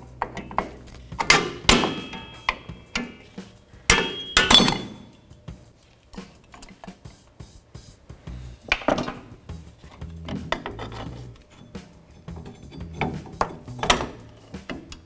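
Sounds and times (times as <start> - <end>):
metal tools clanking: 0.0 - 5.2, 8.7 - 15.0.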